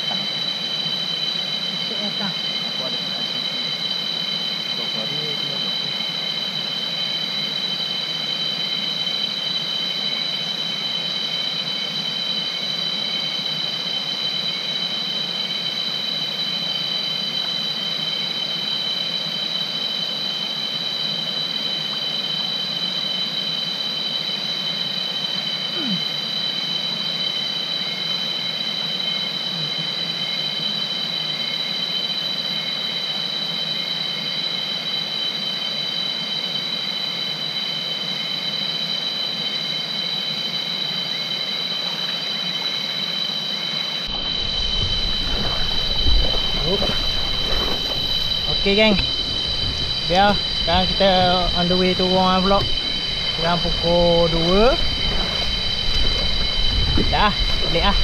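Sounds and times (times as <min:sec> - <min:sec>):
cicadas droning: 0:00.0 - 0:58.0
even hiss: 0:43.8 - 0:58.0.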